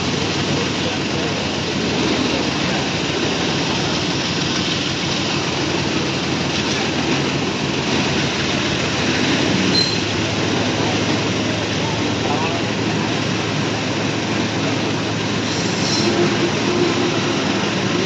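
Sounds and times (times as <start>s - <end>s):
train wheels rumbling on rails: 0.0s - 18.0s
brief high squeal: 9.7s - 10.1s, 15.5s - 16.4s.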